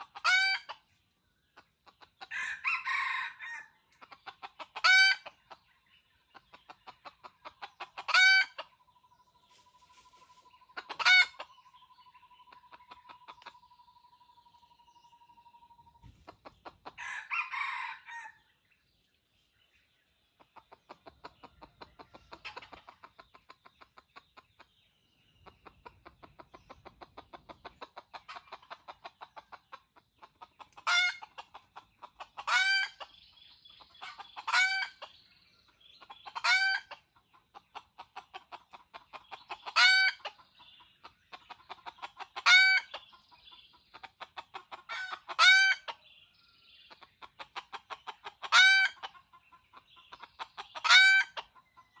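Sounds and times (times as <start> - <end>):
junglefowl calling: 0.0 - 0.8, 8.0 - 8.6, 9.8 - 11.5, 30.8 - 31.4, 32.4 - 33.1, 34.0 - 35.1, 36.2 - 37.0, 42.3 - 43.0, 44.8 - 46.0, 48.4 - 49.2, 50.5 - 51.5.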